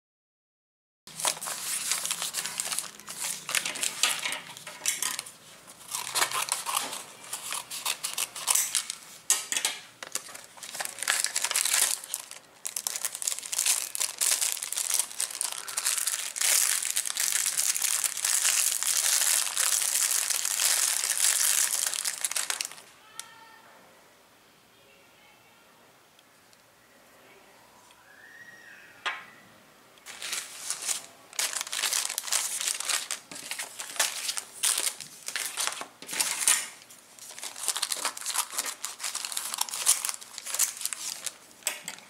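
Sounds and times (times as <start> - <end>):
paper envelope crinkling: 1.1 - 9.2, 10.0 - 22.9, 30.0 - 42.0
plastic bag crinkling: 1.1 - 9.2, 10.0 - 22.9, 30.0 - 42.0.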